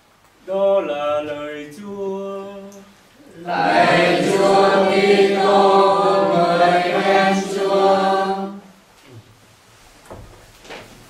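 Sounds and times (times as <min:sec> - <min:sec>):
congregation singing plain chant: 0:00.7 - 0:08.8.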